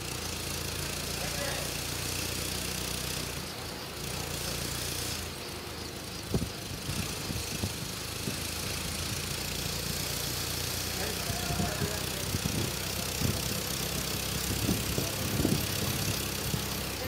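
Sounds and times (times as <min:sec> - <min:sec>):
helicopter engine humming: 0:00.0 - 0:17.0
sharp clicks and rattles: 0:00.0 - 0:17.0.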